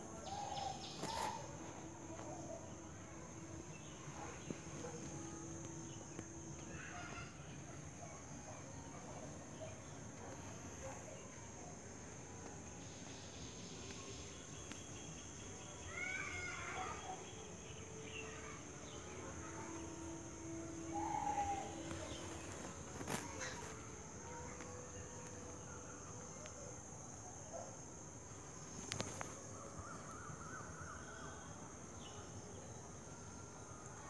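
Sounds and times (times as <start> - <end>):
high insect drone: 0.0 - 34.0
bird calls: 0.2 - 1.6.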